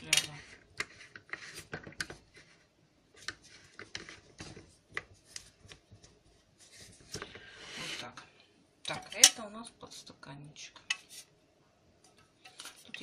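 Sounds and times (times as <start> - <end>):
plastic rubbing: 0.0 - 8.0.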